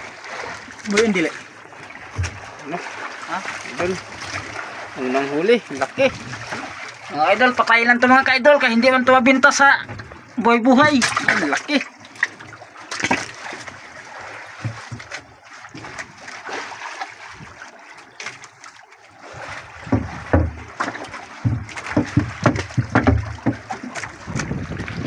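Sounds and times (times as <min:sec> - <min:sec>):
water splashing in boat hull: 0:00.0 - 0:25.0
low thumps and knocks: 0:01.9 - 0:02.6, 0:09.8 - 0:11.4, 0:14.5 - 0:16.1, 0:19.7 - 0:25.0.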